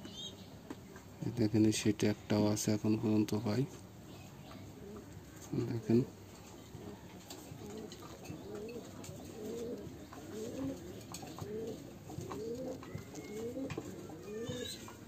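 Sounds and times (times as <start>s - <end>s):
pigeon cooing: 4.4s - 15.0s.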